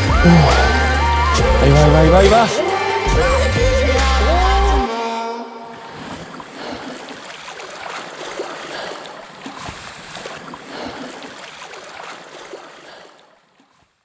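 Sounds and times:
waves lapping against rocks: 0:05.9 - 0:14.0.

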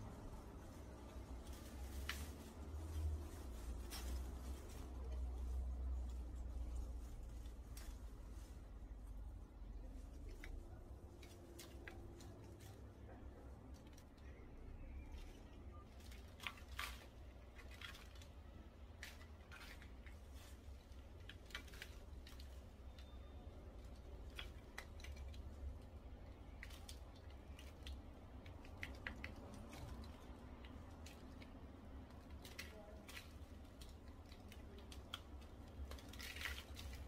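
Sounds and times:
soil crackling: 0:00.0 - 0:37.0.

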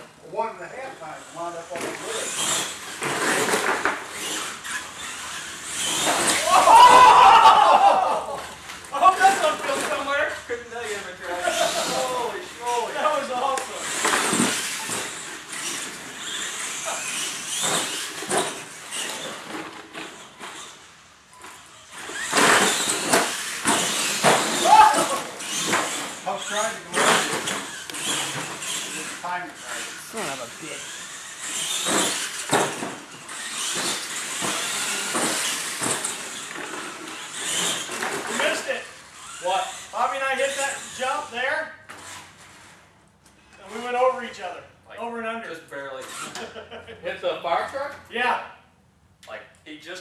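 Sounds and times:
rc truck motor whine: 0:01.1 - 0:07.2, 0:08.4 - 0:42.9, 0:46.0 - 0:46.5
tyres on concrete: 0:01.4 - 0:42.8.

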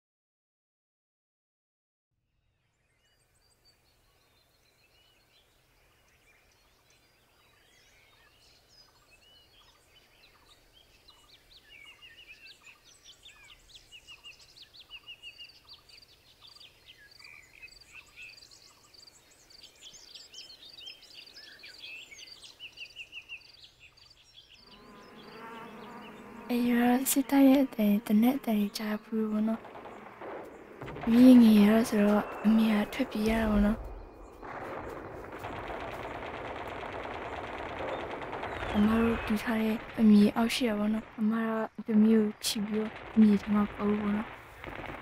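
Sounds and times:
birds chirping and trilling: 0:02.7 - 0:45.0
buzzing: 0:24.7 - 0:41.3.

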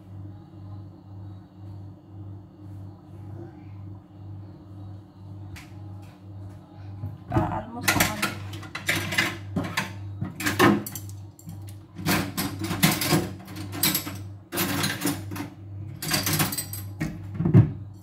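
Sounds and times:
steady low hum: 0:00.0 - 0:18.0
kitchen clattering and scraping: 0:07.3 - 0:17.8.

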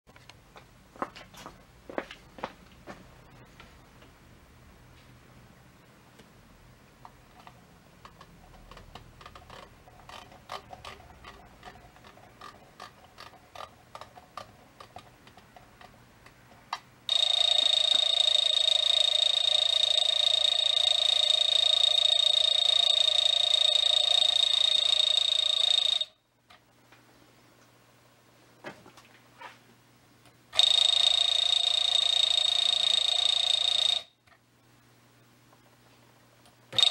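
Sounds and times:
clock knobs clicking: 0:07.0 - 0:26.6, 0:36.4 - 0:36.9
alarm clock bell ringing: 0:17.1 - 0:26.2, 0:30.6 - 0:34.2.

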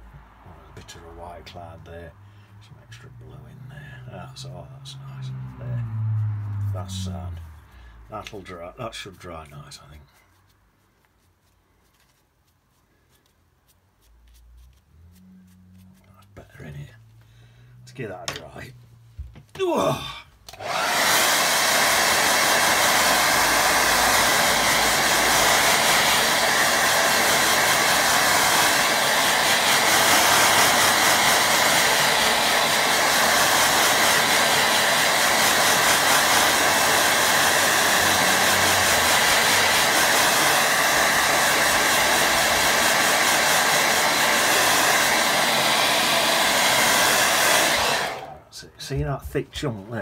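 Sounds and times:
hair dryer running: 0:20.5 - 0:48.4.

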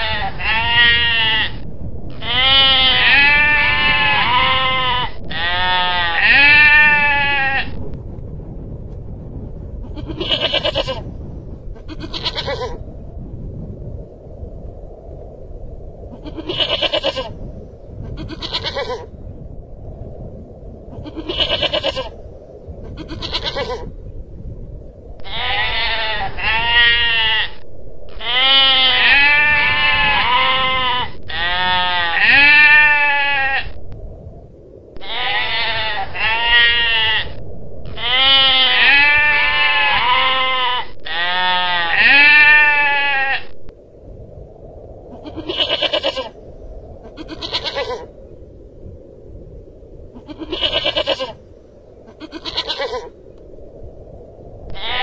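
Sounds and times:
goral bleating: 0:00.0 - 0:07.8, 0:09.9 - 0:11.1, 0:11.8 - 0:12.8, 0:16.2 - 0:17.4, 0:18.1 - 0:19.1, 0:21.0 - 0:22.2, 0:22.9 - 0:23.8, 0:25.2 - 0:33.8, 0:35.0 - 0:43.6, 0:45.2 - 0:46.4, 0:47.1 - 0:48.1, 0:50.2 - 0:51.4, 0:52.1 - 0:53.1, 0:54.7 - 0:55.0.

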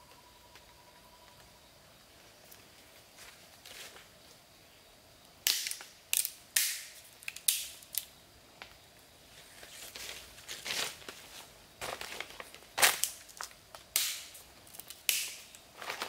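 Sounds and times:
green pole cracking and splintering: 0:13.9 - 0:15.6.

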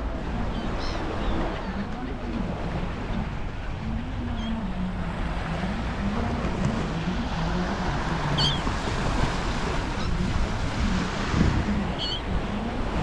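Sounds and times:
surf washing on sandy beach: 0:00.0 - 0:13.0
wind: 0:00.0 - 0:13.0.

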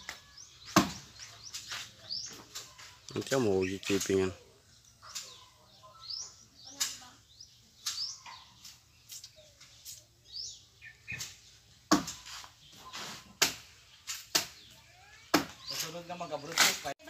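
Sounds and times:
birds chirping: 0:00.0 - 0:17.0
machete chopping branches: 0:00.1 - 0:02.7, 0:07.8 - 0:09.4, 0:11.1 - 0:12.6, 0:13.2 - 0:14.7, 0:15.3 - 0:16.9.

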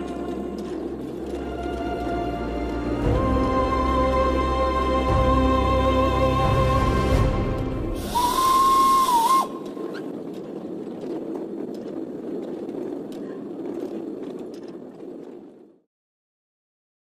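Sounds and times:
steady low rumble: 0:00.0 - 0:15.8
steam whistle with hiss: 0:08.0 - 0:09.6.

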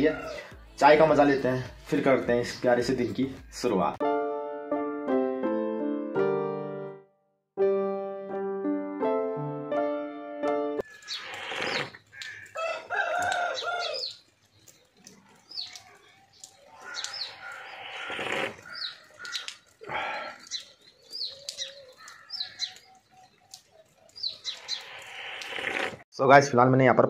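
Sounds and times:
small birds chirping: 0:10.8 - 0:25.9.

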